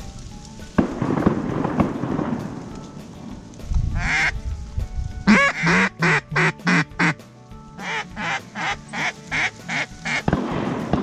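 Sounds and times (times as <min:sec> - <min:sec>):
rustling: 0:00.0 - 0:11.0
duck call quacking: 0:04.0 - 0:04.4, 0:05.3 - 0:07.2, 0:07.8 - 0:10.3.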